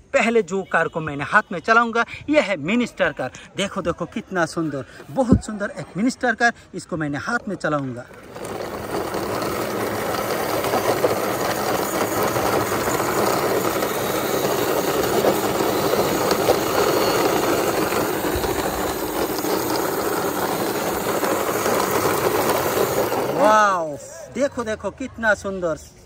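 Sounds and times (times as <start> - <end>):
toy wheels rolling on concrete: 7.2 - 24.7.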